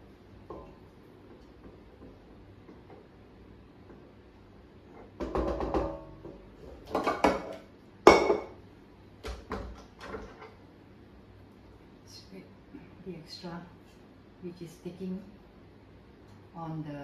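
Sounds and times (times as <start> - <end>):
bowl knocking on stone countertop: 5.2 - 8.6.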